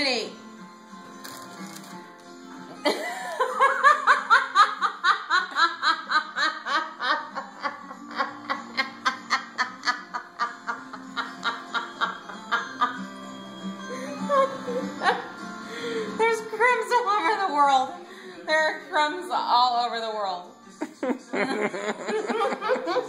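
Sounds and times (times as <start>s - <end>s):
person laughing hard: 2.8s - 13.0s, 20.9s - 23.0s.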